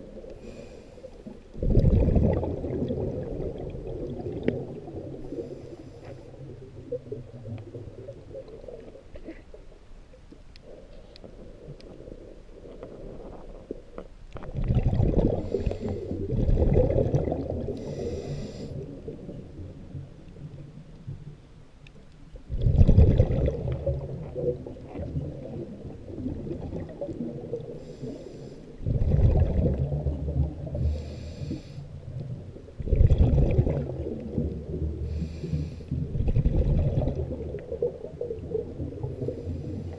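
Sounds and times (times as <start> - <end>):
exhaled bubbles rumbling underwater: 0.0 - 39.9
low underwater rumble: 0.0 - 39.9.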